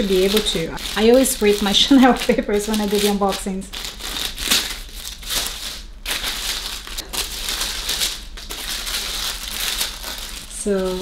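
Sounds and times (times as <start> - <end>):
wrapping paper crinkling: 0.0 - 11.0.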